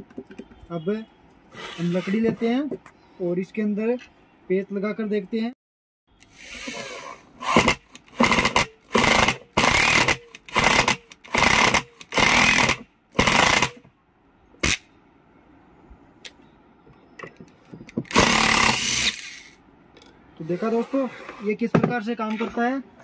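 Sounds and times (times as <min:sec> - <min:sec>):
impact screwdriver driving screw: 0:06.5 - 0:13.8, 0:18.0 - 0:19.6.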